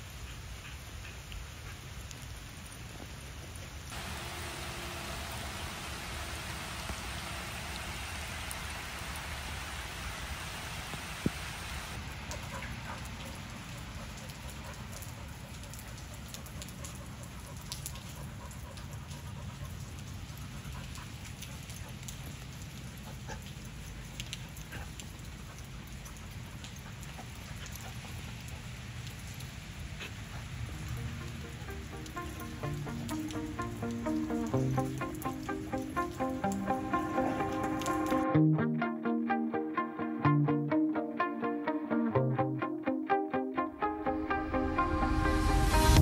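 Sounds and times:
rain falling: 0:00.0 - 0:38.4, 0:43.6 - 0:46.0
scattered raindrop ticks: 0:00.1 - 0:04.2, 0:10.9 - 0:38.3.

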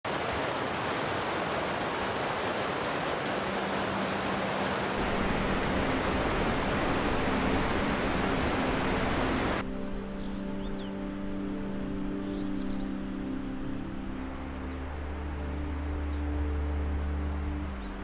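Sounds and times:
stream rushing over rocks: 0:00.0 - 0:09.6.

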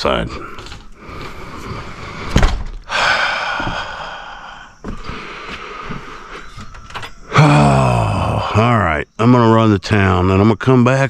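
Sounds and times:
door shutting thunk: 0:02.2 - 0:02.9.

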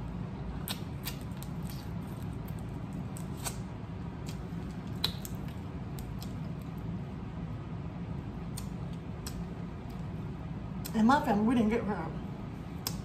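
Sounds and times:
low background hum: 0:00.0 - 0:13.0
wet sucking and smacking eating: 0:00.5 - 0:07.0, 0:08.4 - 0:10.2.

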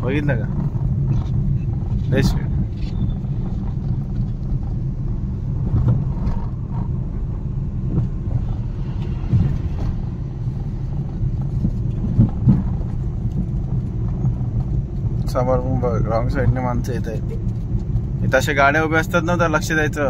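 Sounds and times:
car engine and tyres rumbling: 0:00.0 - 0:20.0
car bumps: 0:00.4 - 0:14.8.

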